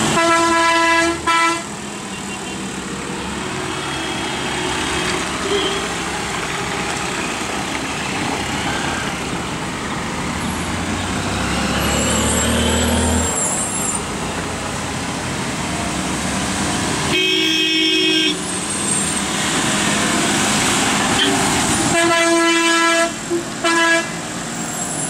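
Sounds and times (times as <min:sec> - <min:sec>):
vehicle horn: 0:00.1 - 0:02.6, 0:05.4 - 0:05.9, 0:17.1 - 0:18.4, 0:21.2 - 0:24.2.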